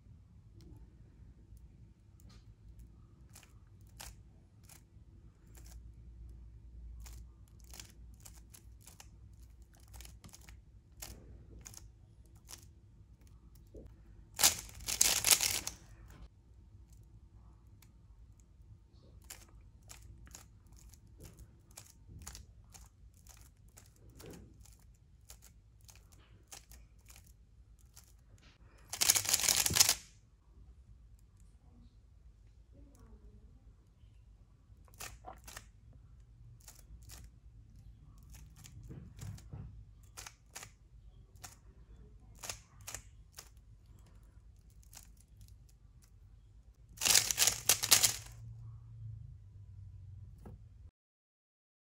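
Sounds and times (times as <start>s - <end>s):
rapid cube clattering: 7.0s - 12.7s, 14.4s - 15.8s, 28.9s - 30.0s, 47.0s - 48.4s
puzzle cube clicks: 14.4s - 15.8s, 28.9s - 30.1s, 47.0s - 48.4s.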